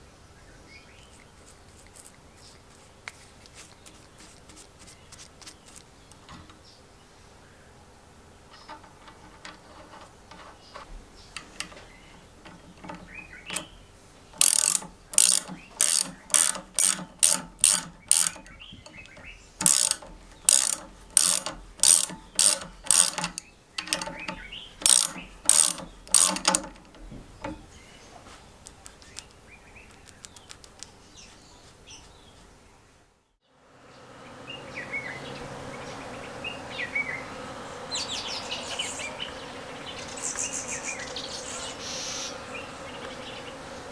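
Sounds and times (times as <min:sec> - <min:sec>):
ratchet spanner clicking: 0:08.6 - 0:13.8, 0:14.4 - 0:27.7
bees humming: 0:33.7 - 0:43.9.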